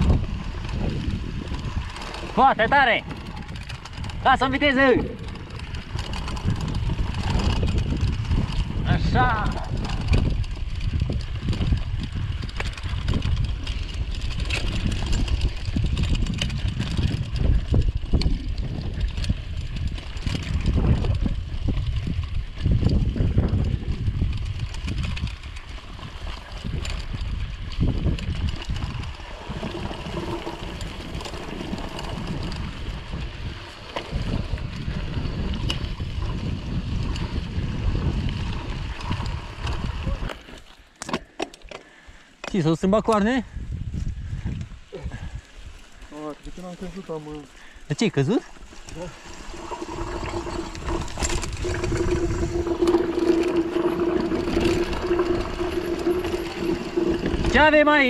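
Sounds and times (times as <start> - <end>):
wind rumble on microphone: 0.0 - 40.5, 42.9 - 58.0
bike knocks and rattles: 0.0 - 43.3.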